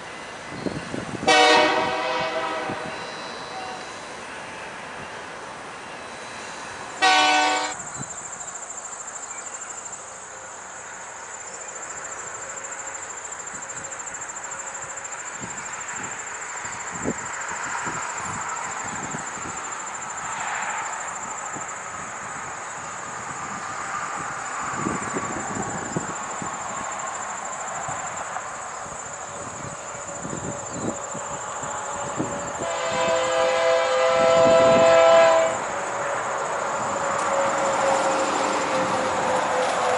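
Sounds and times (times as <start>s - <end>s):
crickets chirring: 0.0s - 39.9s
freight train rumbling: 0.0s - 39.9s
locomotive horn blast: 1.2s - 4.0s, 7.0s - 7.8s, 32.1s - 36.2s, 36.8s - 39.9s
train wheels clicking: 34.3s - 39.9s.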